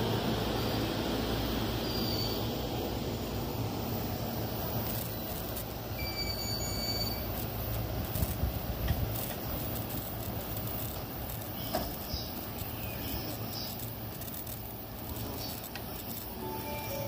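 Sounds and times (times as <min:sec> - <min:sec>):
train hum: 0:00.0 - 0:17.0
platform noise: 0:16.2 - 0:17.0
chiming melody: 0:16.4 - 0:17.0.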